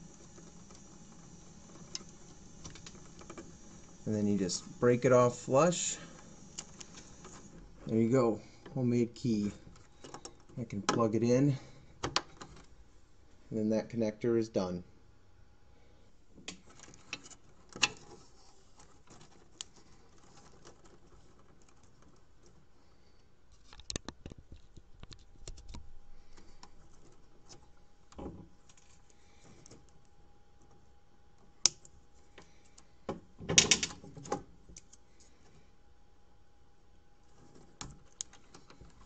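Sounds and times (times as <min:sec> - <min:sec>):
plastic connectors clicking and rattling: 0:37.4 - 0:39.0.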